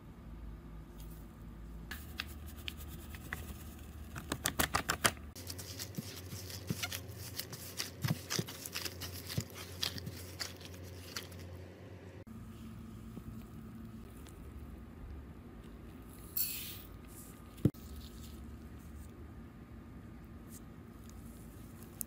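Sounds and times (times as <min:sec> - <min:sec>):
hands kneading dough: 0:01.9 - 0:11.6.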